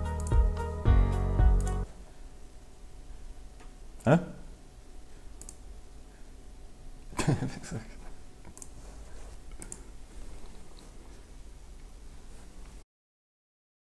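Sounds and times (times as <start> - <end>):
computer mouse clicks: 5.4 - 5.6, 8.4 - 8.8, 9.5 - 10.6.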